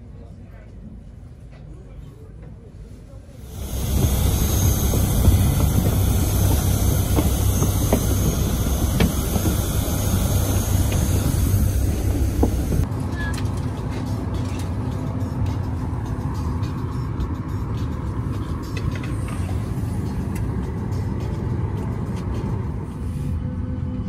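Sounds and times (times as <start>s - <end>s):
airliner cabin hum: 3.4s - 12.9s
aircraft rumble with high whine: 3.4s - 24.0s
passengers boarding clicks and knocks: 3.5s - 14.8s.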